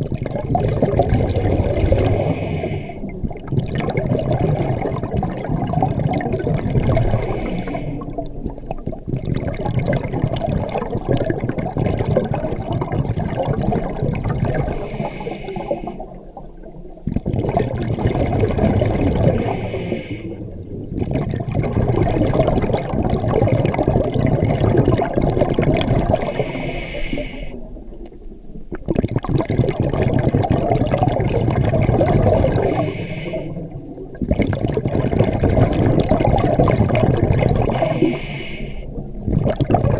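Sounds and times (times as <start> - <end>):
bubbling exhalations underwater: 0.0 - 39.9
regulator hissing inhalations: 2.2 - 3.1, 7.2 - 8.1, 14.7 - 16.0, 19.4 - 20.4, 26.2 - 27.6, 32.6 - 33.6, 37.7 - 38.9.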